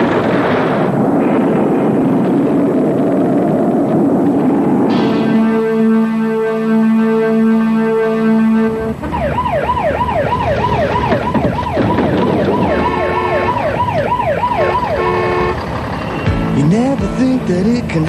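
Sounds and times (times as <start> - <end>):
steady siren tone: 4.4 - 16.2
siren wailing: 5.1 - 16.2
held musical chord: 5.2 - 9.0.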